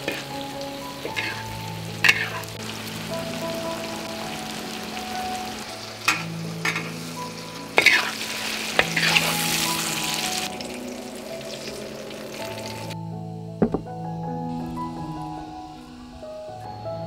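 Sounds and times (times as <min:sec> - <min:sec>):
metal spatula scraping a pan: 0:00.0 - 0:00.4, 0:01.0 - 0:02.6, 0:06.1 - 0:07.1, 0:07.8 - 0:09.6
food sizzling in a wok: 0:00.0 - 0:13.0.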